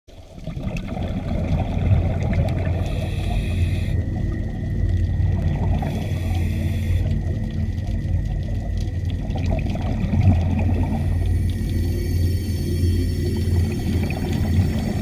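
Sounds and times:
underwater bubbles rumbling: 0.1s - 15.0s
hissing regulator breaths: 2.7s - 4.1s, 5.8s - 7.1s, 10.9s - 15.0s.

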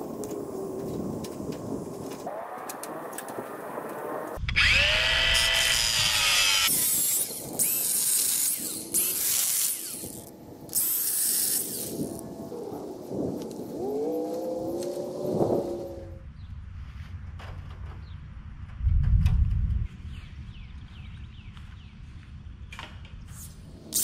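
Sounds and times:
cordless drill driving screws: 4.5s - 12.2s.

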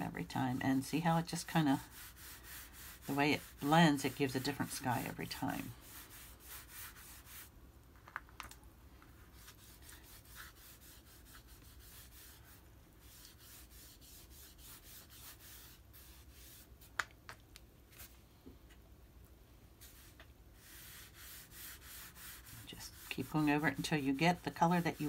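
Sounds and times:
applicator rubbing on paper: 1.2s - 7.5s, 9.3s - 16.7s, 19.8s - 25.0s.

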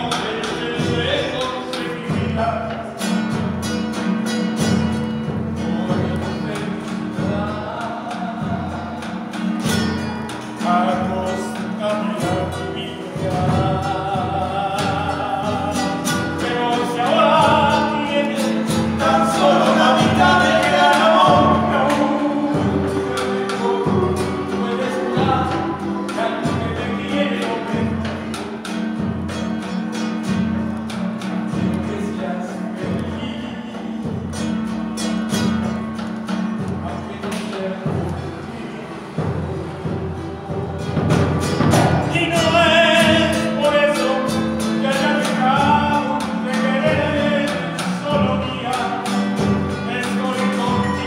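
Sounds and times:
acoustic guitar: 0.0s - 51.0s
man singing: 0.0s - 51.0s
bass drum beating: 10.9s - 29.6s, 32.8s - 51.0s.

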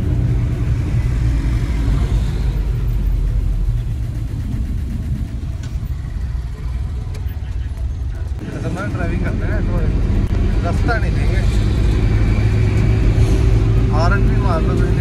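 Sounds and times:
car engine rumble: 0.0s - 15.0s
road noise: 0.0s - 15.0s.

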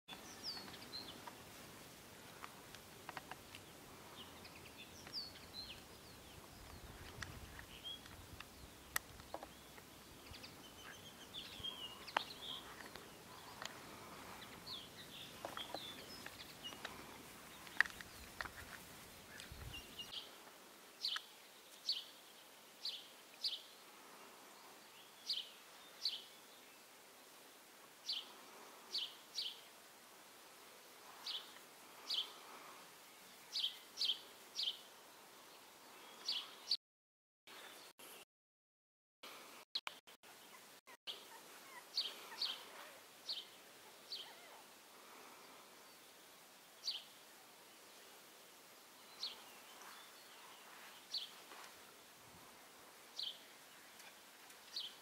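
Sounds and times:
birds chirping: 0.1s - 1.6s, 2.2s - 20.4s, 21.0s - 23.8s, 31.1s - 36.8s, 40.2s - 47.2s, 48.9s - 51.8s, 53.1s - 55.0s.

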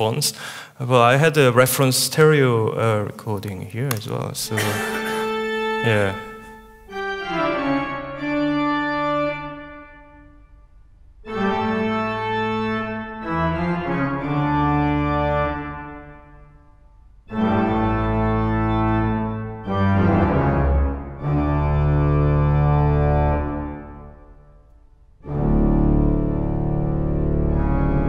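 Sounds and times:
deep organ pedal bass: 4.5s - 10.4s, 11.2s - 24.6s, 25.2s - 28.0s
pipe organ chords: 4.5s - 28.0s.

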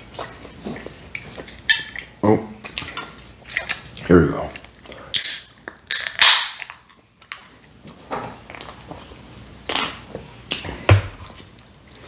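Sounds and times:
can snapping open with fizz: 5.2s - 6.8s.

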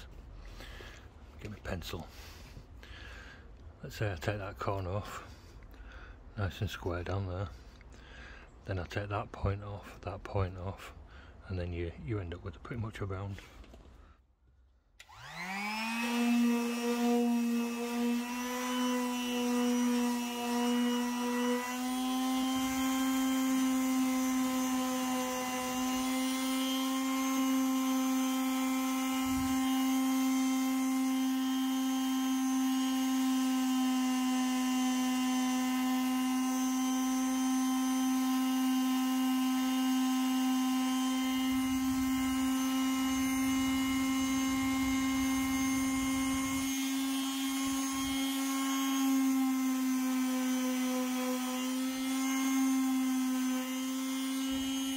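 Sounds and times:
orbital sander whining: 15.0s - 54.9s.

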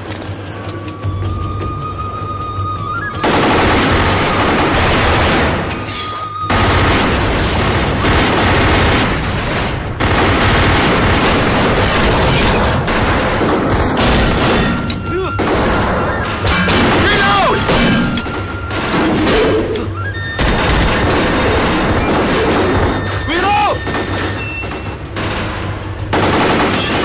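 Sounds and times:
automatic gunfire: 3.2s - 5.7s, 6.5s - 14.8s, 15.4s - 17.5s, 23.9s - 27.0s.

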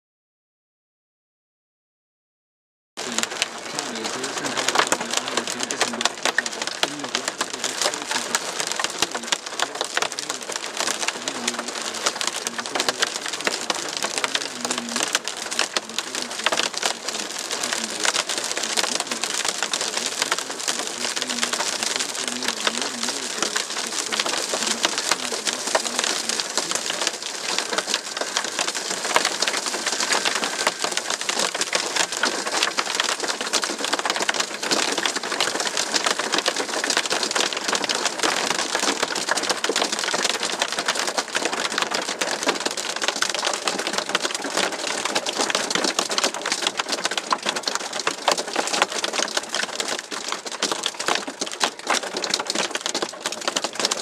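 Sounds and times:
hail and rain pelting car roof: 3.0s - 54.0s.

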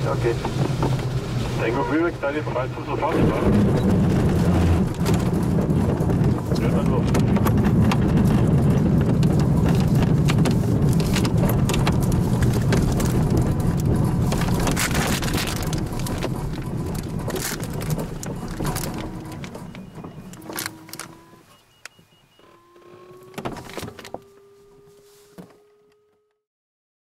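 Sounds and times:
wheel rolling over grass: 0.0s - 21.8s, 22.4s - 25.7s
airframe knocks and rattles: 0.4s - 1.4s, 3.1s - 21.4s.

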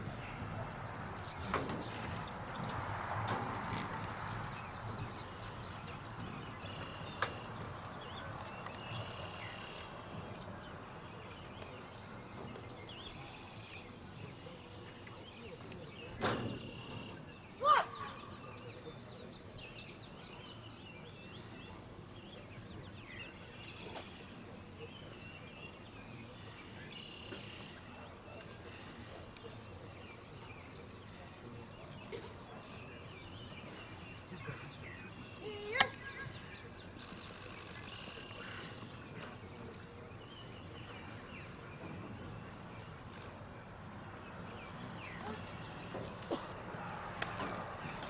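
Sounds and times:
small birds chirping: 0.0s - 48.0s.

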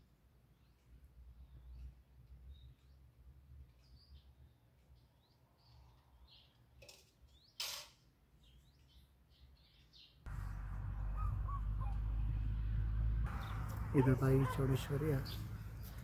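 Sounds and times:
small birds chirping: 0.1s - 16.0s
steady low rumble: 10.3s - 14.0s.

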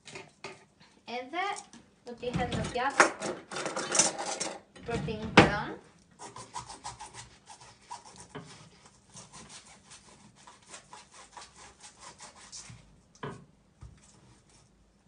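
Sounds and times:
knife cutting fruit on board: 6.2s - 14.7s.

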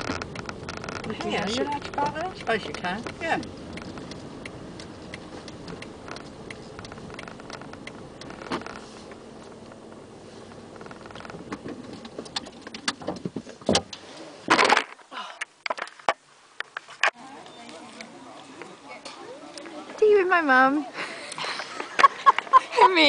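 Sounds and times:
car engine idling: 0.0s - 13.6s.

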